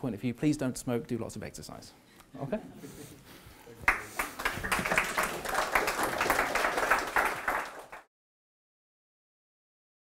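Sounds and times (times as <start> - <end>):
audience applause: 3.9 - 8.1.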